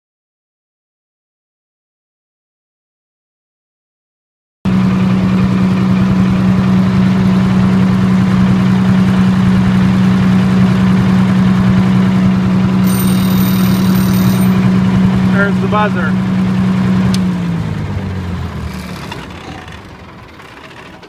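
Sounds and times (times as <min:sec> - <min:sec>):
diesel generator engine hum: 0:04.7 - 0:21.0
faint high ringing: 0:12.8 - 0:14.8.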